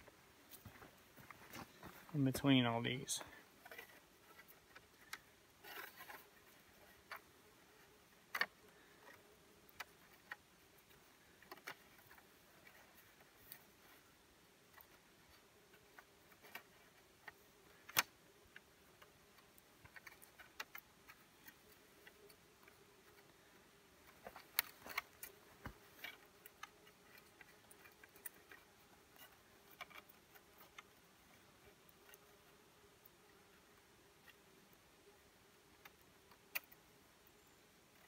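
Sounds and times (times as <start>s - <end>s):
wire clicking against sticks: 15.8s - 23.2s.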